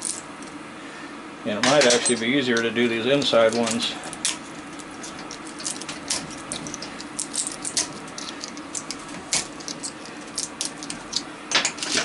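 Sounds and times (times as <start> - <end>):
metal tool scraping and clicking: 1.7 - 12.0.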